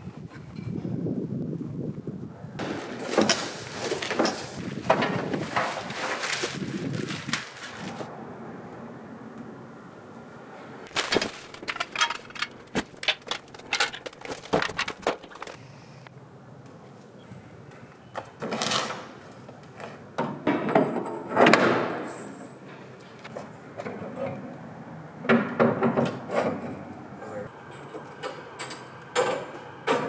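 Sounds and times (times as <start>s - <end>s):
metal rubbing and scraping: 10.9s - 15.6s
metal tubes knocking and clinking: 11.0s - 15.6s.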